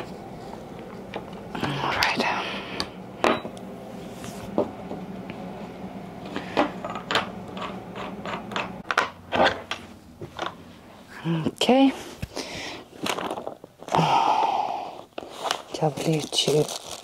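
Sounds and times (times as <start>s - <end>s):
low hum: 0.0s - 11.6s.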